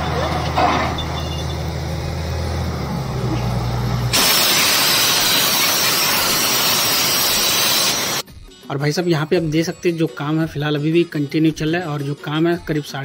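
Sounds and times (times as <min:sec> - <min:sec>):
drilling rig engine drone: 0:00.0 - 0:08.2
compressed air rushing: 0:03.4 - 0:08.2.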